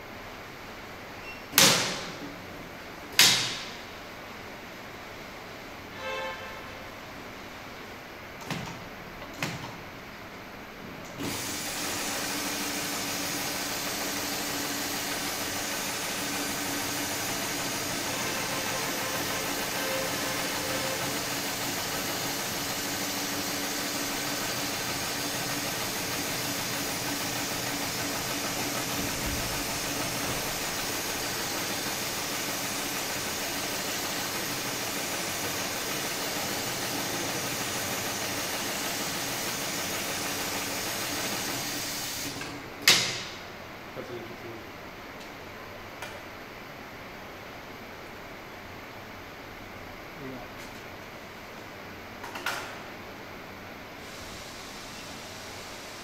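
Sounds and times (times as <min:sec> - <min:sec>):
sewing machine running: 0:11.2 - 0:42.4.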